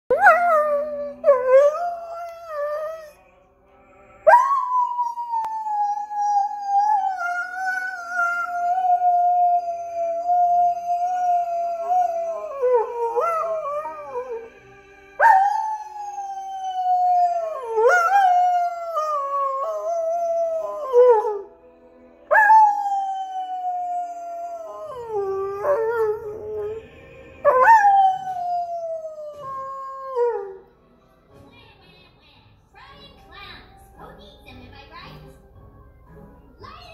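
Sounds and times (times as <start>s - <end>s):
faint opera music: 0.1s - 36.9s
dog howling: 4.2s - 14.5s, 15.2s - 21.5s, 22.3s - 30.6s.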